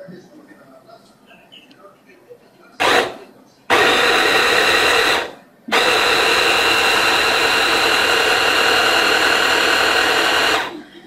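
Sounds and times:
hand blender motor chopping: 2.8 - 10.8.

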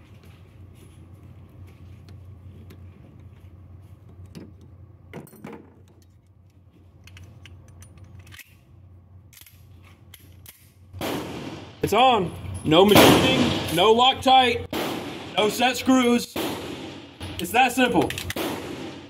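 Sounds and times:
steady low hum: 0.0 - 19.0
metal clicks of pistol handling: 5.9 - 8.7, 9.3 - 10.8, 18.0 - 18.4.

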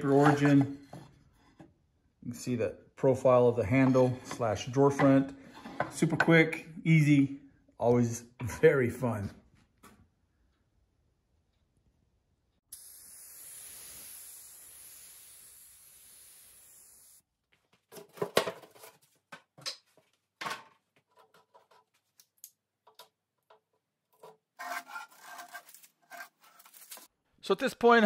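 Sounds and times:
steady hiss: 12.7 - 17.2
tape being peeled off: 25.2 - 27.1.

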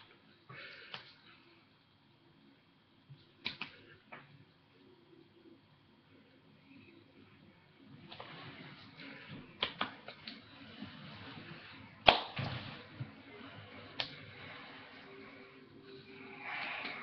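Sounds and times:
hands tapping and slapping: 3.4 - 4.3, 9.6 - 10.4, 12.0 - 13.1.

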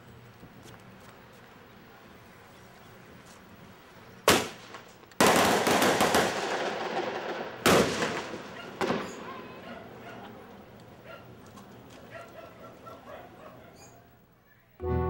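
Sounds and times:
crackling volley: 3.1 - 13.5
sharp explosive bangs: 4.3 - 9.3.

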